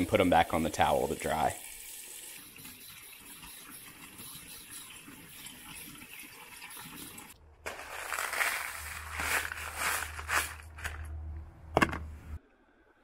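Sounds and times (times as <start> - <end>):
tap water pouring into a tub: 0.0 - 7.4.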